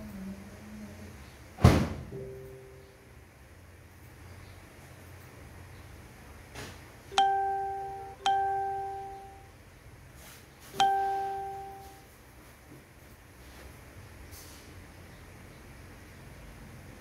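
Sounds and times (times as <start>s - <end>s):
bell-like chime: 7.2s - 9.5s, 10.8s - 12.0s.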